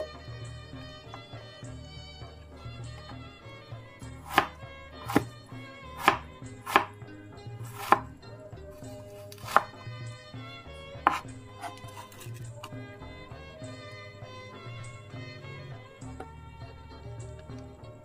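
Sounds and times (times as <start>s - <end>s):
soft background music: 0.0s - 18.0s
knife chopping on cutting board: 4.1s - 7.0s, 7.6s - 8.1s, 8.8s - 9.9s, 11.0s - 12.7s.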